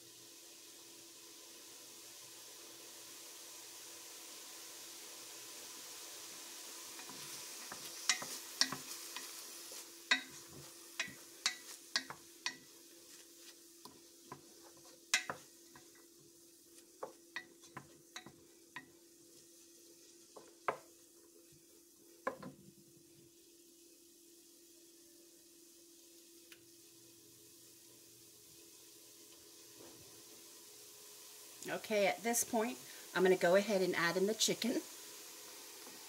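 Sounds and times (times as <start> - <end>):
onion sizzling in oil: 0.0 - 36.0
wooden spoon scraping a pot: 7.0 - 16.1.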